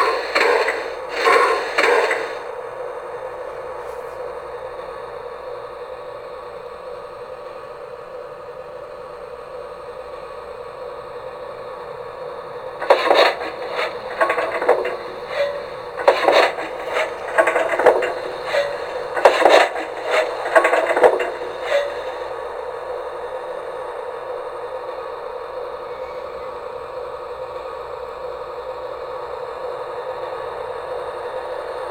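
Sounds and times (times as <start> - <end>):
loud short steam bursts: 0.0 - 2.6
model locomotive steam sound hum: 0.0 - 31.9.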